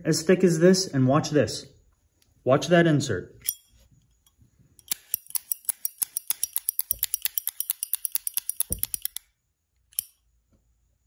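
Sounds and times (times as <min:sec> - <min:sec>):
lighter rattling when shaken: 0:04.9 - 0:09.2.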